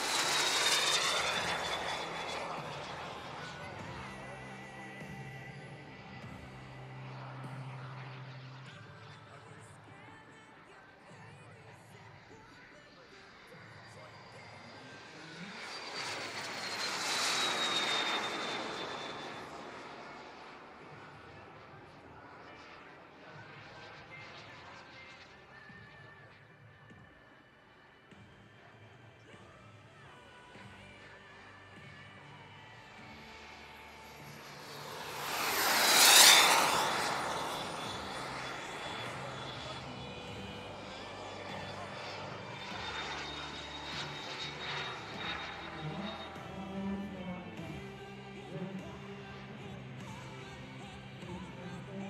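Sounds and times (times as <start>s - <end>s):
jet flying past: 0.0s - 9.4s, 12.2s - 26.0s, 31.8s - 47.8s
high turbine whine: 0.0s - 9.5s, 12.4s - 25.4s, 30.8s - 47.9s.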